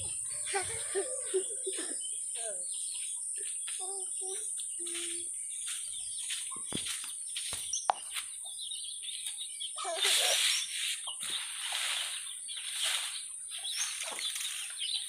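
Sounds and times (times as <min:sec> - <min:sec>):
chickens clucking: 0:00.0 - 0:07.1, 0:13.6 - 0:15.0
small birds chirping: 0:00.0 - 0:15.0
grass broom sweeping earth: 0:09.8 - 0:15.0.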